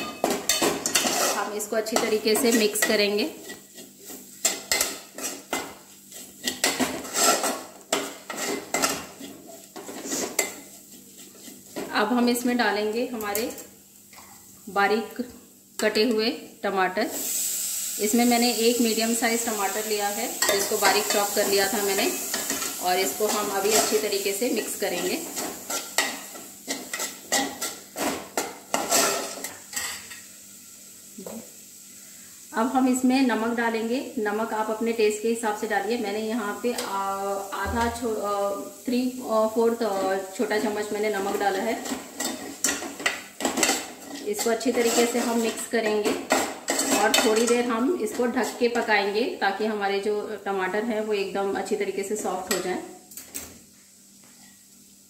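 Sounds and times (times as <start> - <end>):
metal spoon scraping pan: 0.0 - 11.9, 20.3 - 30.2, 39.9 - 48.6.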